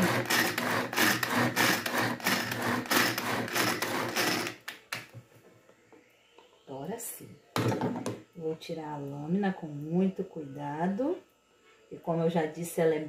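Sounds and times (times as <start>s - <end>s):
pull-cord chopper being pulled: 0.0s - 4.6s.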